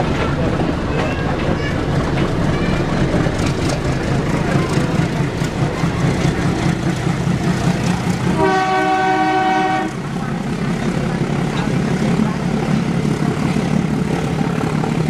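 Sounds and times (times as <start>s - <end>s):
train rumble and rail clatter: 0.0s - 15.0s
locomotive horn: 8.3s - 10.0s.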